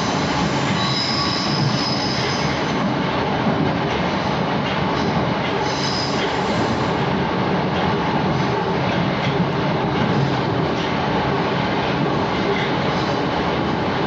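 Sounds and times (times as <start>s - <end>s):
train rumbling through tunnel: 0.0s - 14.0s
high wheel squeals: 0.8s - 2.6s.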